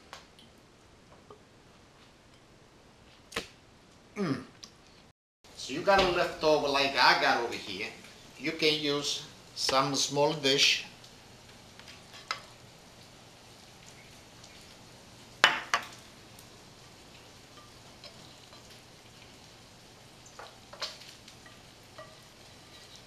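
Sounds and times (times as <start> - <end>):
utensil clicking on a pan: 20.2 - 23.0
spatula scraping a frying pan: 20.7 - 23.0.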